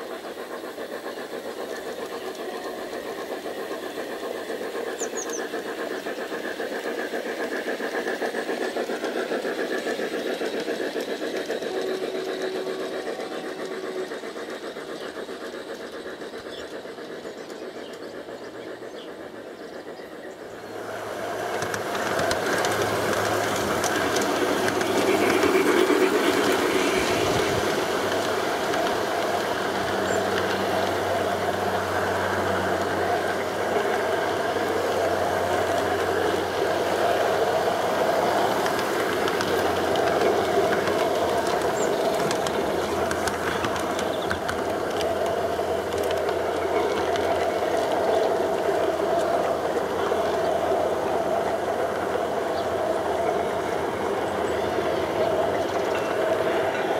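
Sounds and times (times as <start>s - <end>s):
model train motor whirring: 0.0s - 56.9s
wheels clicking on rails: 0.0s - 56.9s.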